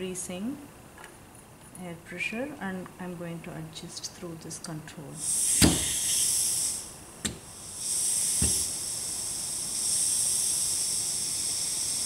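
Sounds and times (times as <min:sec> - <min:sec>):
compressed air hissing: 0:05.2 - 0:12.0.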